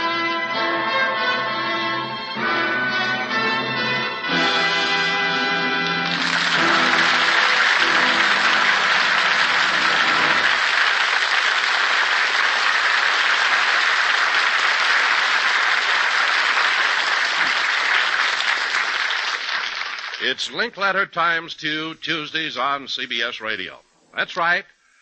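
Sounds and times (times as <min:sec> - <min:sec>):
orchestra music low notes: 0:00.0 - 0:10.8
audience applauding: 0:04.4 - 0:20.4.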